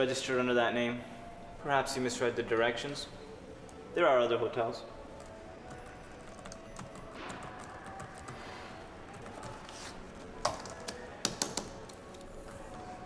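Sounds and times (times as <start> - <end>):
typing on computer keyboard: 5.2 - 8.4.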